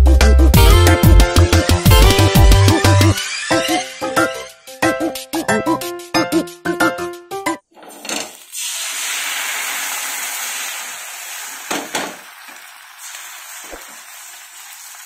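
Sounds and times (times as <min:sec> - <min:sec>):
batter sizzling on hot pan: 0:08.3 - 0:15.0.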